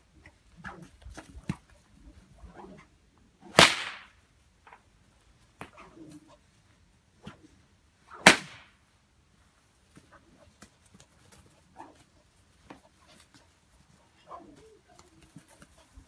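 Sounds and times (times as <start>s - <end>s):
bullwhip crack: 3.5s - 4.2s, 8.1s - 8.8s
faint ticks and rustles: 8.9s - 16.0s.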